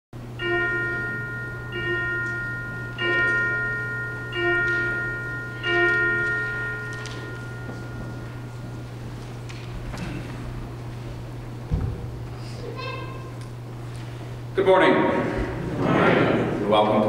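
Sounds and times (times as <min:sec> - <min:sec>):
low hum: 0:00.2 - 0:17.0
bell ringing: 0:00.3 - 0:09.5.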